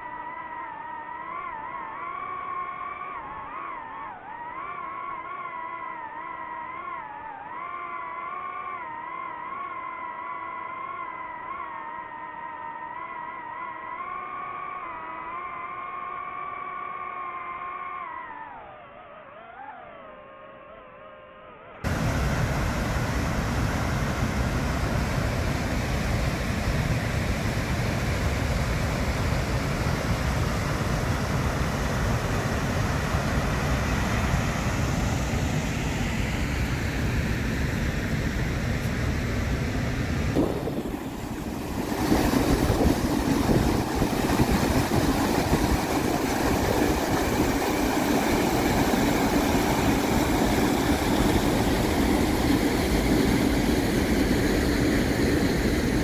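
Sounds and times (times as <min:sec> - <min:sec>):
floodwater rushing: 0:21.9 - 0:36.0, 0:40.3 - 0:55.4.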